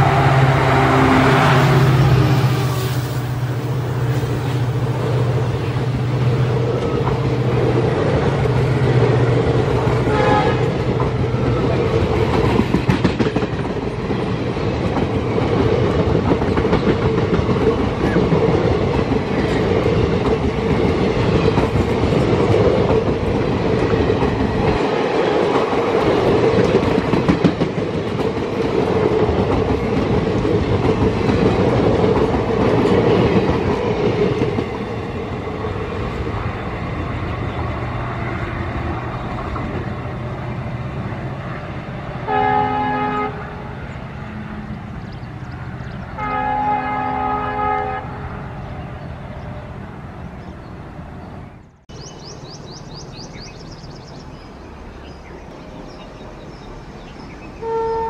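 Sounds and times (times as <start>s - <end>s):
train passing with rail rumble: 0.0s - 58.0s
wheels clickety-clack over rail joints: 4.0s - 47.2s.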